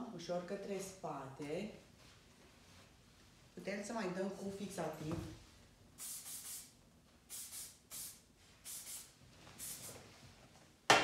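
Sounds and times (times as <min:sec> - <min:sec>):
aerosol can spraying: 0:06.0 - 0:10.0.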